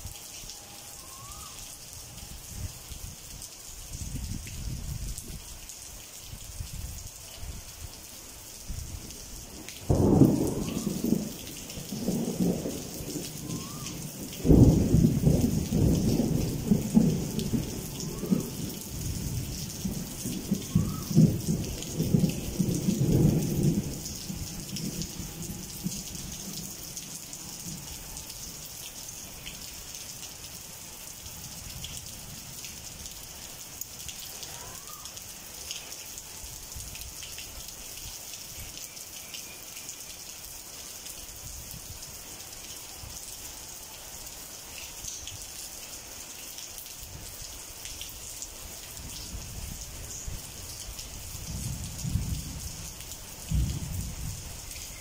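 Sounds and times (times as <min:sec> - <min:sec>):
rain falling: 0:00.0 - 0:55.0
thunder rolling: 0:09.9 - 0:13.7, 0:14.4 - 0:26.0.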